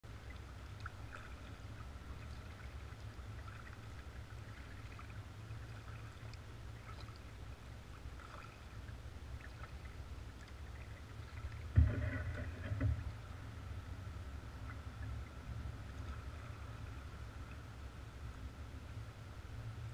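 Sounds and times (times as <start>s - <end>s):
water drips and trickles: 0.0s - 18.4s
kayak paddling low rumble: 0.0s - 19.9s.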